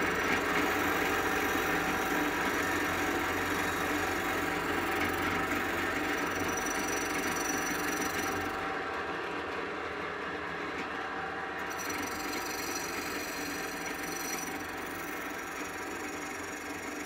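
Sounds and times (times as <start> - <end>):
drill press motor hum: 0.0 - 8.7, 11.6 - 17.0.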